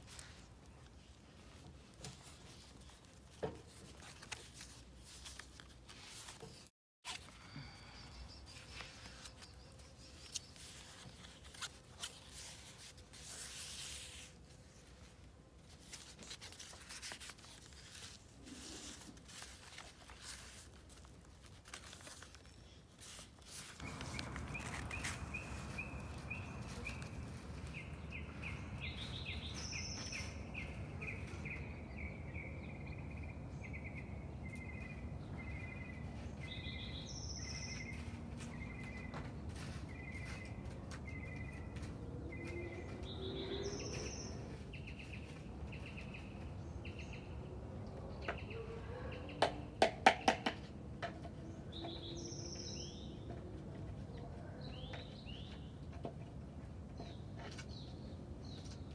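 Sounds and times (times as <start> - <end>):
paper pages rustling: 0.0 - 7.4, 8.5 - 31.4, 37.5 - 42.4
birds chirping: 23.8 - 49.4.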